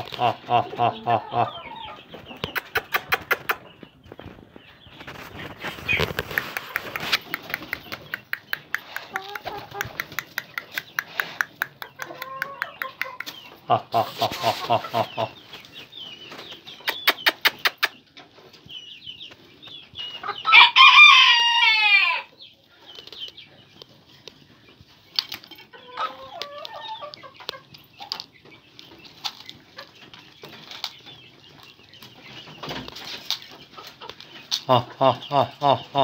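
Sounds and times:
low bird clucking call: 0.0 - 3.7, 16.8 - 18.0
bird clicks: 6.0 - 13.5
rooster crowing: 20.5 - 22.3.

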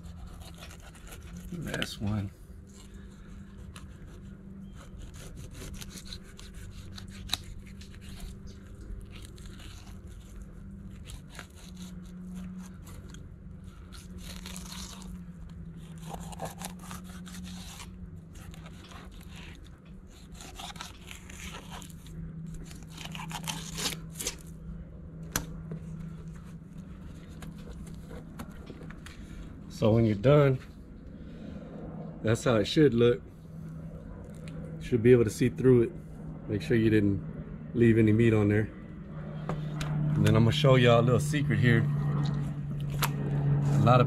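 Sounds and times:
knife scraping over fish bones: 0.0 - 24.4
low hum: 0.0 - 44.0.

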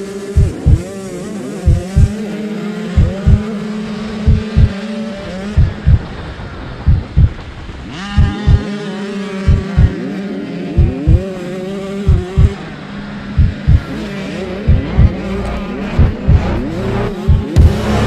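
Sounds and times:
dirt bike engine revving: 0.0 - 18.0
other dirt bikes running: 0.0 - 18.0
heavy low thumps: 0.4 - 0.9, 1.7 - 2.1, 3.0 - 3.4, 4.3 - 4.8, 5.6 - 6.2, 6.8 - 7.6, 8.2 - 8.6, 9.5 - 9.9, 10.8 - 11.2, 12.1 - 12.6, 13.4 - 13.9, 14.7 - 15.2, 15.9 - 18.0.

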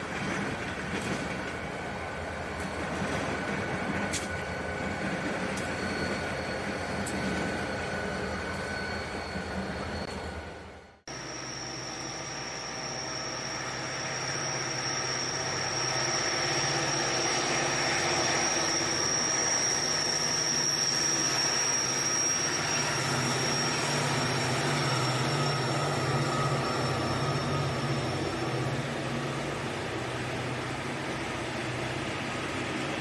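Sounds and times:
diesel locomotives rumbling past: 0.0 - 33.0
train cars rolling on rails: 0.0 - 33.0
high-pitched whine: 0.2 - 33.0.

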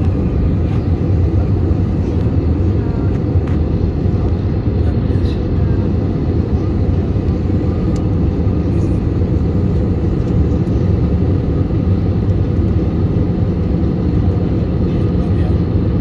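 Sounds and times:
jet engine rumble: 0.0 - 16.0.

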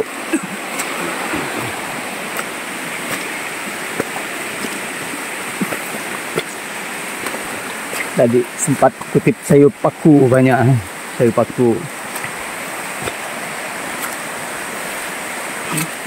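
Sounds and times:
river water rushing: 0.0 - 16.0.

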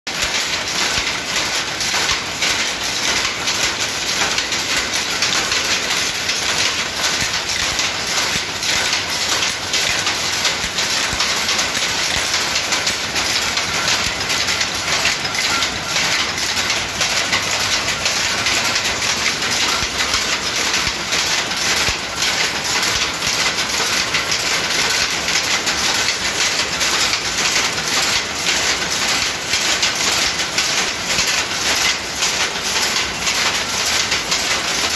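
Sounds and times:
power loom clattering: 0.1 - 34.9.

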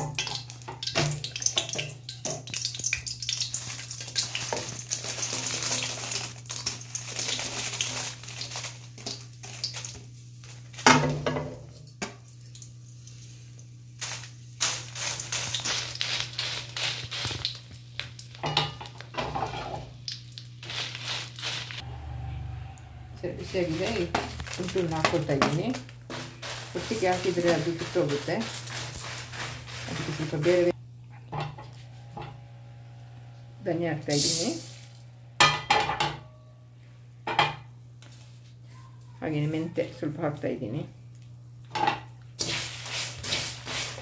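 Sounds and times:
steady low hum: 20.6 - 38.1
chillies stirred in metal pan: 23.4 - 30.7.

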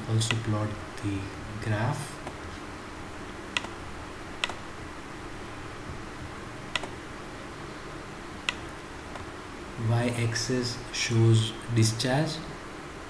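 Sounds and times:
low background hiss: 0.0 - 13.0
computer mouse clicking: 3.5 - 3.8, 4.4 - 4.6, 6.7 - 7.0, 8.4 - 9.3.

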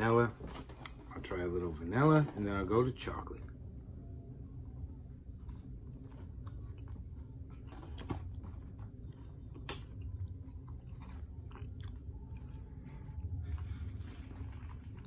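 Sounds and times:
person chewing: 5.3 - 15.0.

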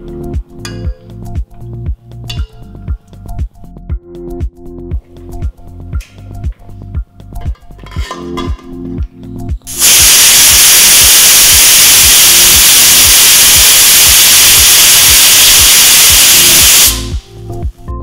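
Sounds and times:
pressure cooker whistle hissing: 9.7 - 17.4.

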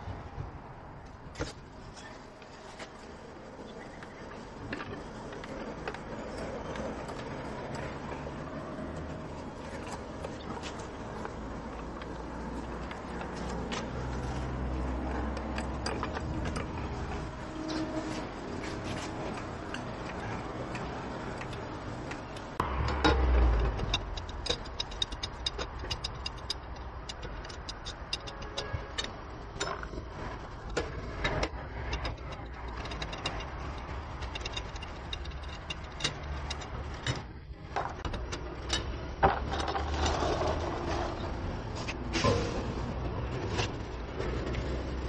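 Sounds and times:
lug wrench clicking on lug nuts: 19.3 - 40.5.

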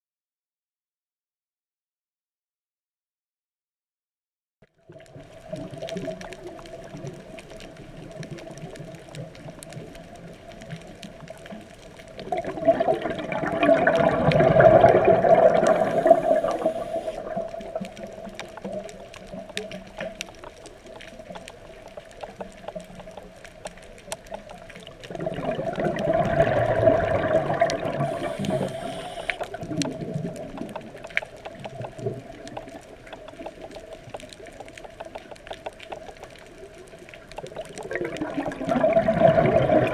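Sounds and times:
underwater bubbles rushing: 4.8 - 39.9
small clicks: 15.5 - 25.4, 27.4 - 38.5
steady faint tone: 28.0 - 29.5.

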